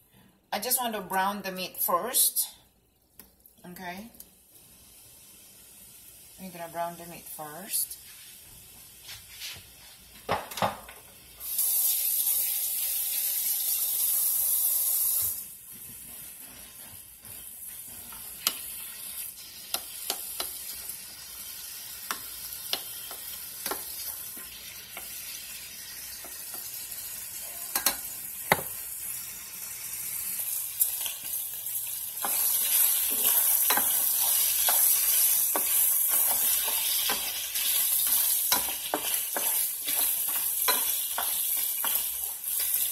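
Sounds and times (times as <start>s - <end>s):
meat sizzling in a pan: 4.5s - 6.7s, 11.0s - 15.6s, 16.2s - 42.9s
spoon clicking and scraping pan: 19.7s - 20.6s, 22.0s - 24.2s, 27.7s - 28.6s, 32.2s - 42.9s.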